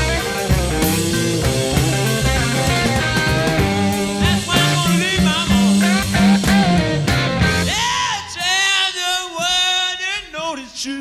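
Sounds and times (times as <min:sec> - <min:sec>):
bass guitar: 0:00.0 - 0:08.4
electric guitar with bent notes: 0:00.0 - 0:08.4
drums: 0:00.0 - 0:11.0.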